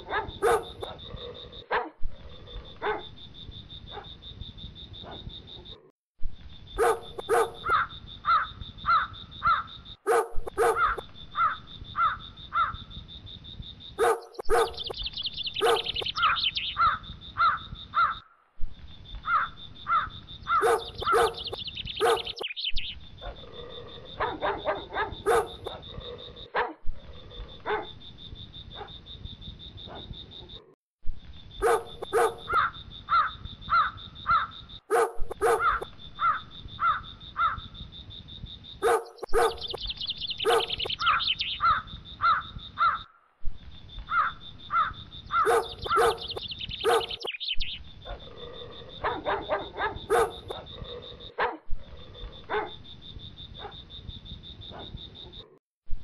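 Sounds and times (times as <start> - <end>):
dog barking: 0.0 - 2.0, 2.7 - 3.1, 3.9 - 4.2, 5.0 - 5.3, 6.8 - 11.6, 14.0 - 15.0, 15.6 - 16.1, 20.5 - 22.4, 23.2 - 23.4, 24.1 - 26.8, 27.6 - 28.0, 28.7 - 29.0, 29.9 - 30.1, 31.6 - 36.4, 38.8 - 39.8, 40.4 - 43.0, 44.2 - 47.3, 48.1 - 51.7, 52.3 - 52.8, 53.6 - 53.8, 54.7 - 55.0.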